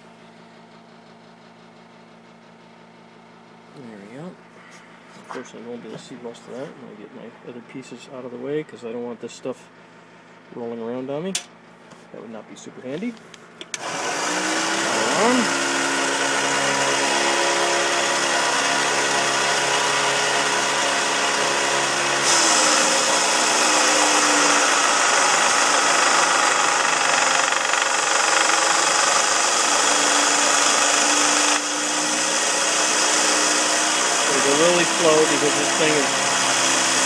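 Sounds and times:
bandsaw motor hum: 13.7 - 37.0
blade grinding through pipe: 14.0 - 20.7, 21.8 - 37.0.

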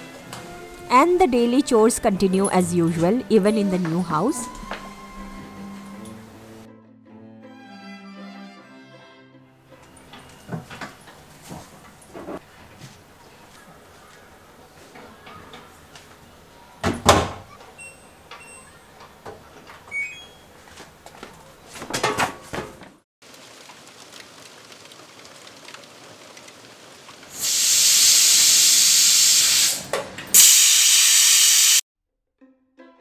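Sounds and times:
pressure cooker venting steam: 27.3 - 31.8.

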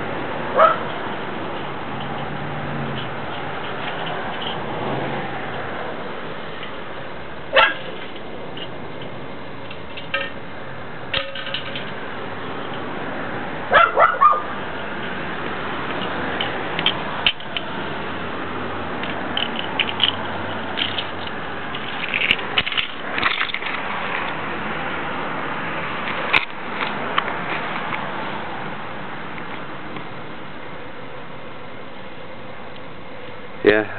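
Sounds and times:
outdoor background noise: 0.0 - 33.9
dog barking: 0.6 - 0.8, 7.5 - 7.8, 13.7 - 14.5.

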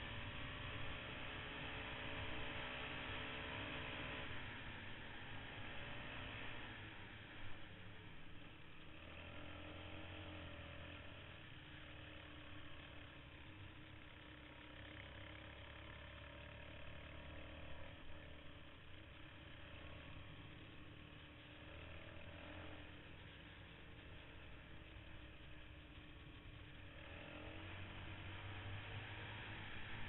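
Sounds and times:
quad engine running: 0.0 - 30.0.

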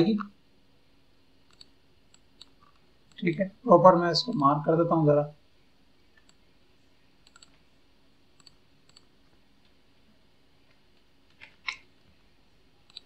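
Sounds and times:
low room hiss: 0.0 - 13.0
computer mouse clicks: 1.4 - 3.3, 6.2 - 6.4, 7.2 - 7.6, 8.4 - 9.1.

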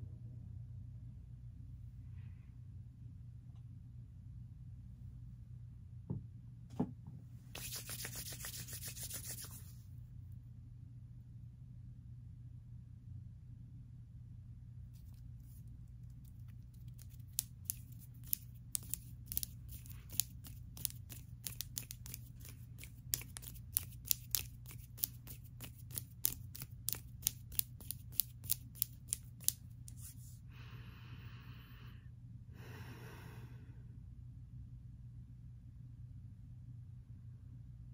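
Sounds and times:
fingernails clicking and tapping: 16.9 - 29.6.

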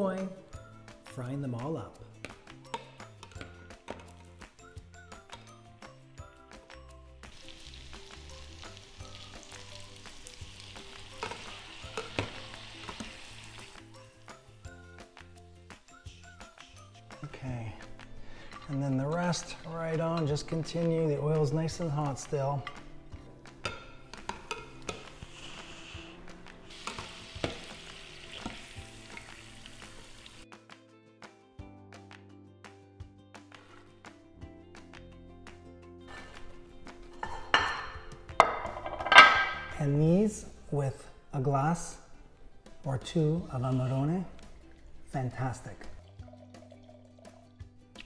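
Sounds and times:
soft background music: 0.0 - 48.0
oil sizzling: 5.1 - 30.5.

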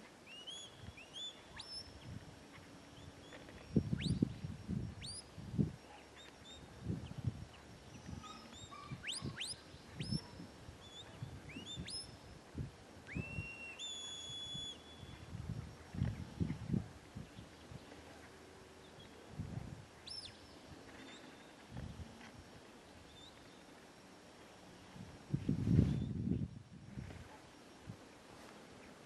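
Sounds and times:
wind buffeting microphone: 3.6 - 5.8, 6.6 - 13.4, 15.1 - 17.9, 19.3 - 20.0, 24.9 - 28.0
shepherd's whistle commands: 13.1 - 15.1.

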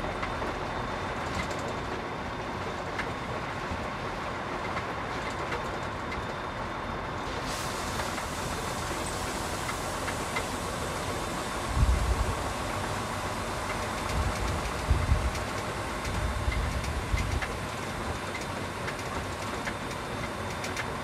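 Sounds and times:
diesel engine and road rumble: 0.0 - 21.0.

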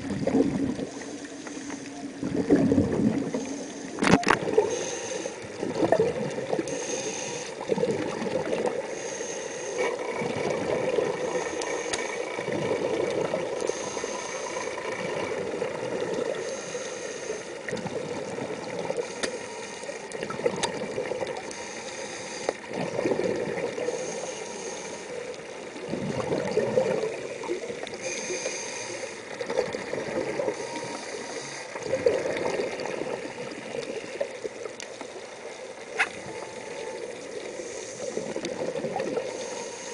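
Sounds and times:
exhaled bubbles gurgling: 0.0 - 9.1, 9.8 - 19.2, 19.8 - 21.8, 22.6 - 39.9
regulator inhale hiss: 0.8 - 2.2, 3.1 - 5.6, 6.6 - 7.7, 8.8 - 10.2, 10.9 - 12.5, 13.4 - 15.2, 16.0 - 17.8, 18.6 - 20.2, 21.4 - 22.8, 23.7 - 25.6, 27.3 - 29.5, 30.3 - 31.9, 37.2 - 38.5, 39.2 - 39.9.

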